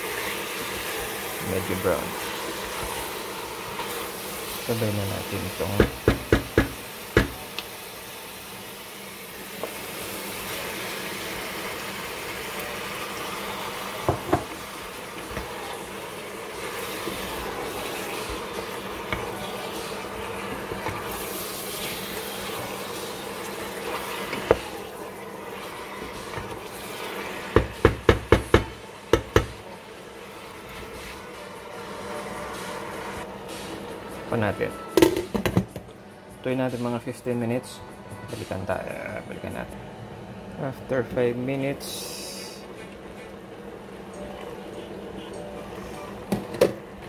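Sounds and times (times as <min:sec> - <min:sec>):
chicken sizzling in a pot: 0:00.0 - 0:35.6, 0:41.5 - 0:47.0
wooden spoon knocking against pot: 0:05.8 - 0:07.4, 0:14.0 - 0:14.5, 0:27.6 - 0:29.6.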